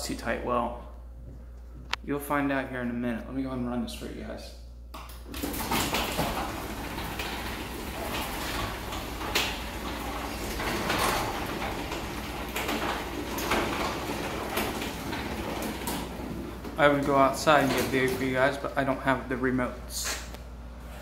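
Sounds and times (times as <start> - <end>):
garage door opener running: 5.0 - 21.0.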